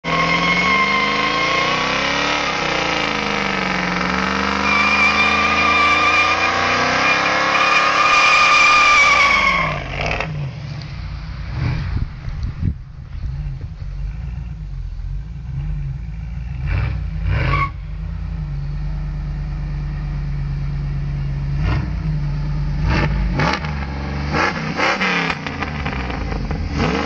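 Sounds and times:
tyres screeching: 0.0s - 3.0s, 4.1s - 10.4s
car engine revving: 0.0s - 27.0s.

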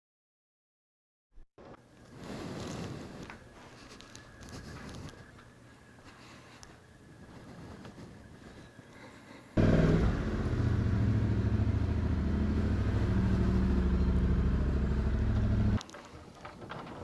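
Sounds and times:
motorcycle engine starting and idling: 9.6s - 15.8s.

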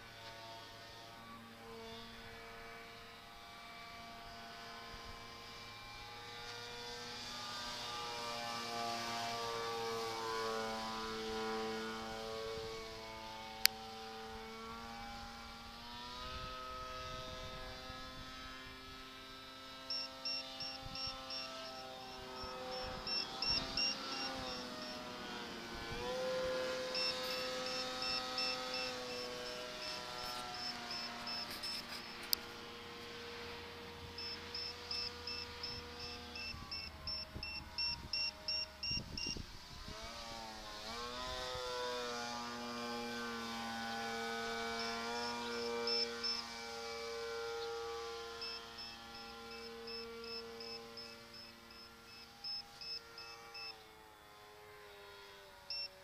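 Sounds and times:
model plane motor whining: 0.0s - 56.0s
short high beeps: 22.4s - 25.0s, 34.2s - 39.4s, 48.4s - 53.7s.

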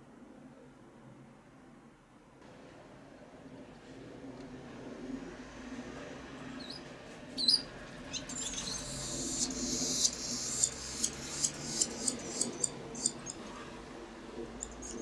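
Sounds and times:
swallows twittering: 7.4s - 13.4s.

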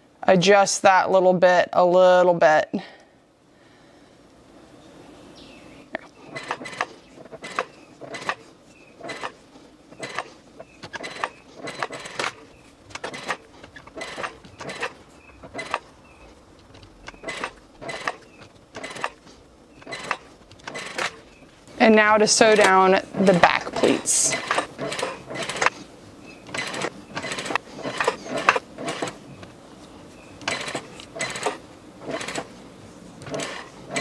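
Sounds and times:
sewing machine stitching: 6.2s - 8.4s, 9.0s - 15.9s, 16.8s - 19.2s, 19.8s - 21.2s, 23.7s - 25.8s, 26.5s - 29.2s, 30.4s - 32.5s, 33.2s - 34.0s.

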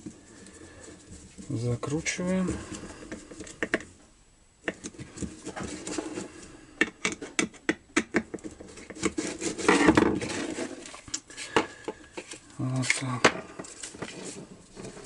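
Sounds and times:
plastic scraping: 4.7s - 15.0s.

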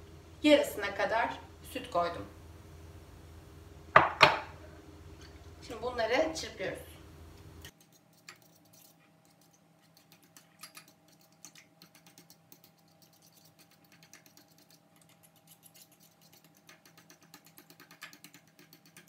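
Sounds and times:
fork clicking against bowl: 7.6s - 19.0s.

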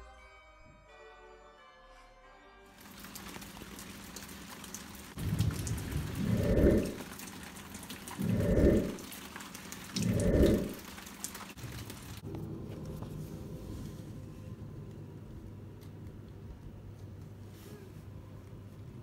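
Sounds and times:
rain falling: 2.7s - 13.2s
low rumbles of thunder: 5.2s - 7.3s, 8.0s - 9.2s, 9.9s - 10.9s.

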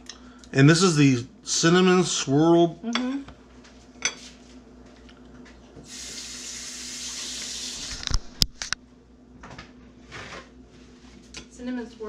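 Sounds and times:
water running from tap: 5.9s - 8.1s.

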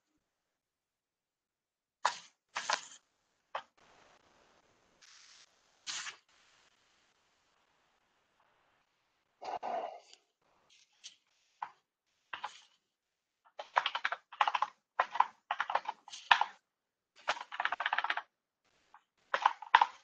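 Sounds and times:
typing on computer keyboard: 12.4s - 12.6s, 13.5s - 16.6s, 17.2s - 18.3s, 19.3s - 20.0s.

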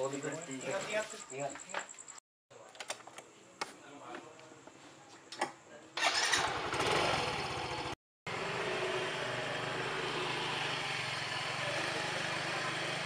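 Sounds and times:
motor scooter engine running: 6.0s - 13.0s.

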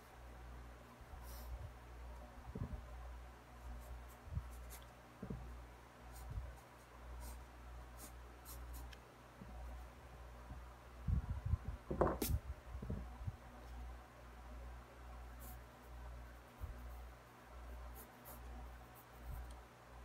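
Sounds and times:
low steady hum: 0.0s - 20.0s
hand bumping on paper: 5.2s - 5.5s, 11.9s - 13.1s.

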